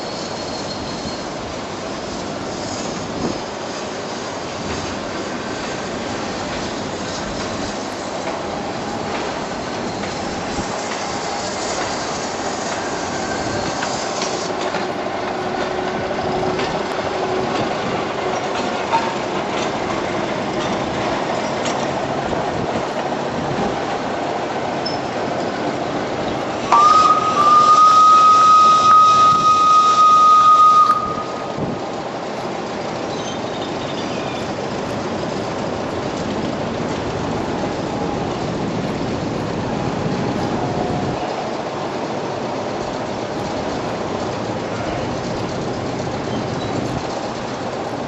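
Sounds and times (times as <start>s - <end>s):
miniature train rolling on track: 0.0s - 48.0s
loud high train whistle: 11.1s - 14.5s, 26.6s - 31.8s.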